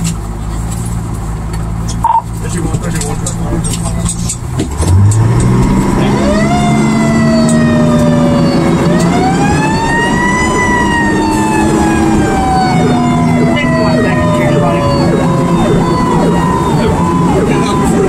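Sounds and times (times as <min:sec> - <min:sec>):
truck engine hum: 0:00.0 - 0:18.0
fire engine siren wailing: 0:05.1 - 0:18.0.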